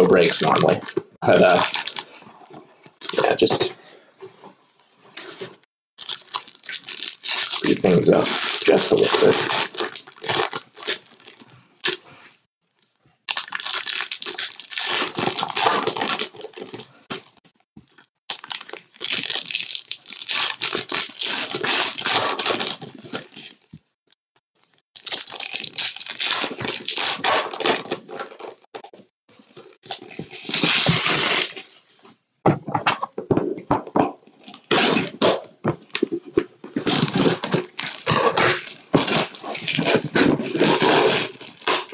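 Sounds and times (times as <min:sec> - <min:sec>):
foil wrappers crackling: 0:06.0 - 0:11.5, 0:36.9 - 0:41.9.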